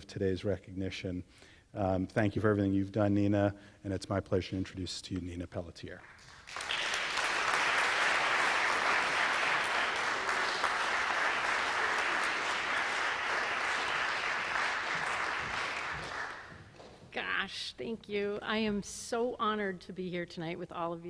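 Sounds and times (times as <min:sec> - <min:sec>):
audience applauding: 0:06.1 - 0:16.7.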